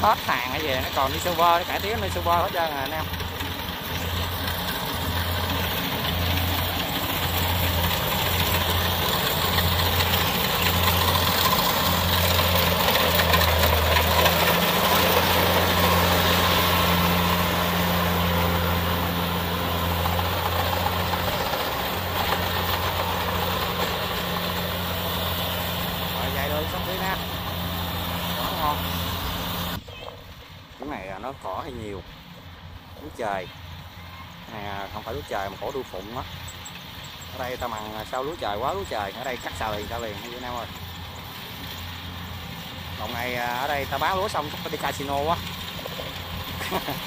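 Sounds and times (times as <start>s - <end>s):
diesel engine throbbing hum: 0.0s - 47.0s
clatter of cutter and threshing drum: 2.7s - 29.8s.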